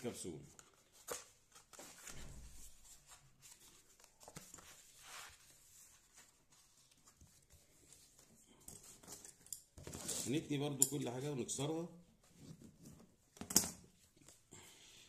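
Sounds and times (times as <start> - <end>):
soft paper rustle: 0.0 - 10.4.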